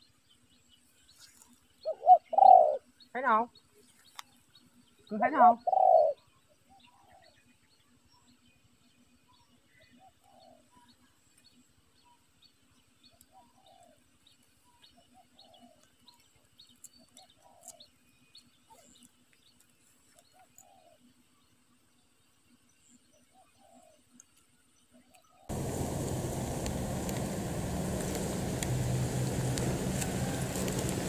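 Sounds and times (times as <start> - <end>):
dove cooing: 1.9 - 2.9, 5.4 - 6.2, 25.5 - 31.0.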